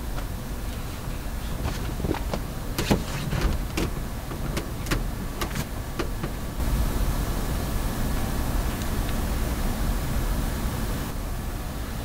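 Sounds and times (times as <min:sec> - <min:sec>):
steady low rumble: 0:05.0 - 0:12.0.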